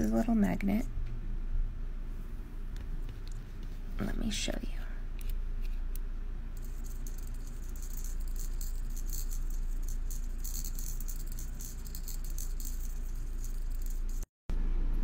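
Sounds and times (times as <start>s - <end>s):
steady low hum: 0.0s - 15.0s
small magnet rattling in cup: 6.6s - 14.3s.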